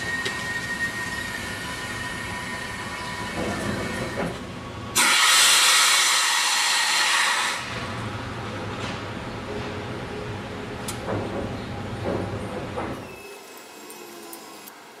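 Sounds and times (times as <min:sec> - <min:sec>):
pressurized water hissing: 0:05.0 - 0:07.6.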